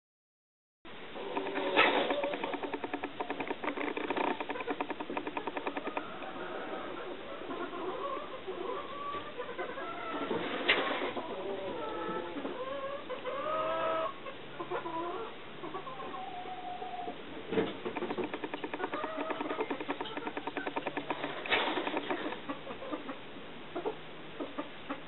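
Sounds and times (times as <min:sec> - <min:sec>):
turkeys clucking: 0:01.2 - 0:23.2.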